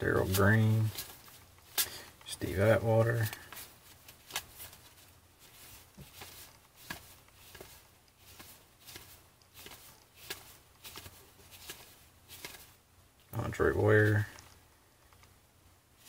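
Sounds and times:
cards being flipped: 0:00.2 - 0:12.8.

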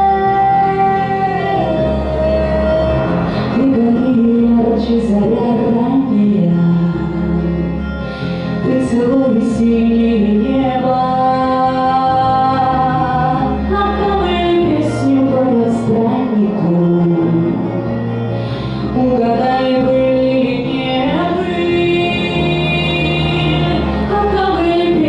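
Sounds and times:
woman singing: 0:00.0 - 0:07.7, 0:08.6 - 0:17.8, 0:18.9 - 0:25.0
backing track with bass: 0:00.0 - 0:25.0.

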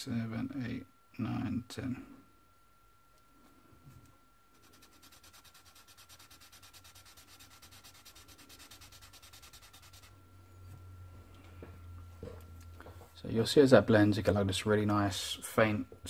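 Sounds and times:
marker rubbing on paper: 0:04.6 - 0:10.2.

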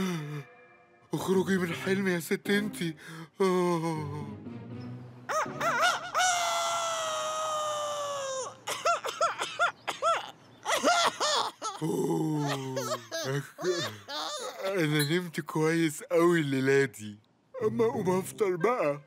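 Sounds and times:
cartoon rooster crowing: 0:05.3 - 0:08.6.

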